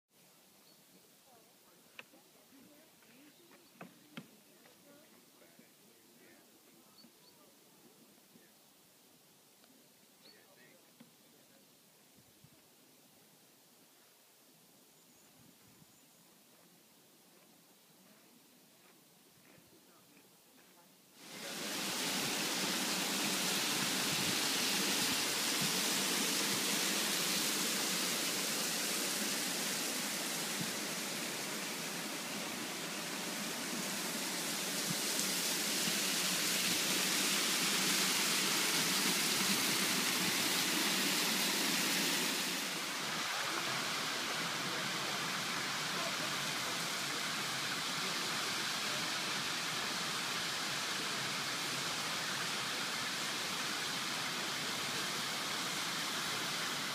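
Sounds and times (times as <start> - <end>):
steam and water hissing: 21.1 - 56.9
geyser erupting: 21.2 - 56.9.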